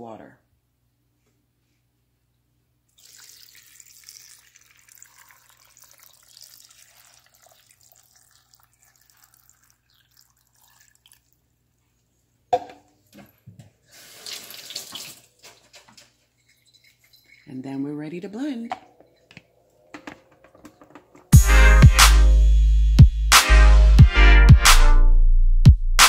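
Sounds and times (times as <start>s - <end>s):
water pouring into blender jar: 2.9s - 11.5s.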